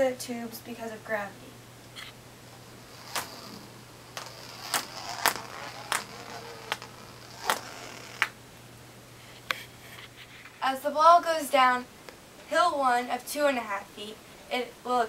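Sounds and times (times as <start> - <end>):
ball rolling through plastic tube: 2.6 - 8.4.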